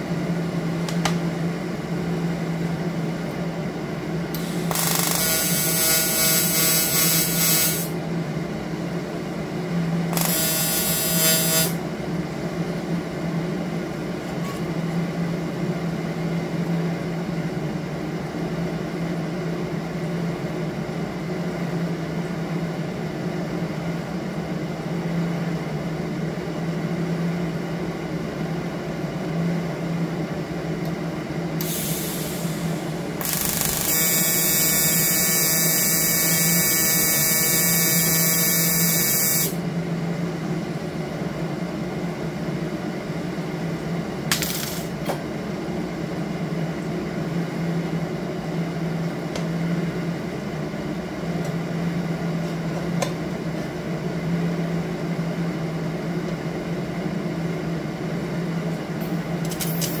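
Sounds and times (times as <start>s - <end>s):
welding arc buzzing: 4.3s - 8.0s, 10.1s - 11.8s, 31.6s - 39.6s, 44.3s - 45.0s, 59.5s - 60.0s
welding machine hum: 4.3s - 8.0s, 9.9s - 11.8s, 31.6s - 39.6s, 44.3s - 45.0s, 59.4s - 60.0s.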